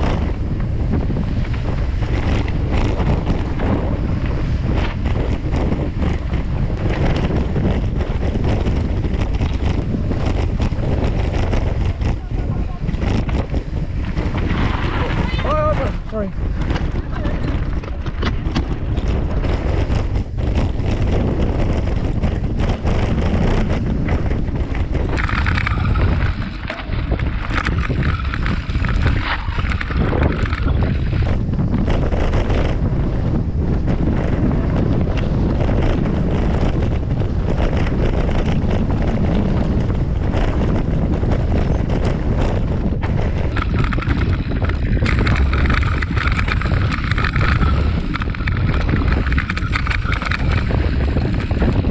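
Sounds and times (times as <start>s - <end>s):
bike clattering over bumps: 0.0s - 51.9s
wind buffeting microphone: 0.0s - 51.9s
tyres crunching over gravel: 23.0s - 31.4s, 38.4s - 51.9s.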